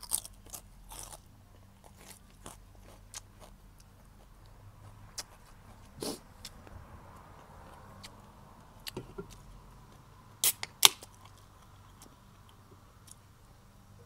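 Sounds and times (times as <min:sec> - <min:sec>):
drink can opening cracks: 0:10.4 - 0:11.1.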